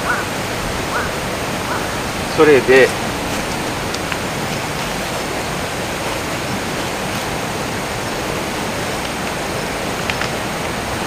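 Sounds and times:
steady hiss: 0:00.0 - 0:11.0
faint small clicks: 0:10.0 - 0:10.4.

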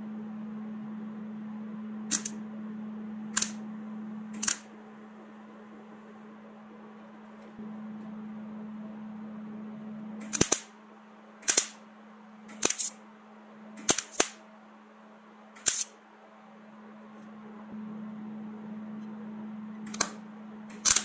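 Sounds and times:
steady low hum: 0:00.0 - 0:21.0
sharp snaps with hiss: 0:02.1 - 0:02.4, 0:03.4 - 0:03.6, 0:10.2 - 0:10.7, 0:11.4 - 0:11.8, 0:12.5 - 0:13.0, 0:13.8 - 0:14.4, 0:15.6 - 0:15.9.

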